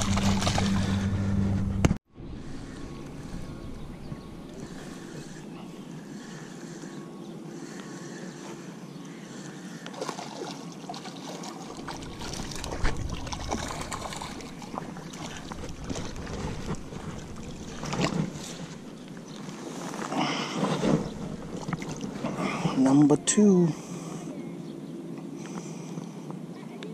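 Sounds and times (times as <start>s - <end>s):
fish splashing and thrashing: 0.0s - 1.1s, 9.3s - 22.7s.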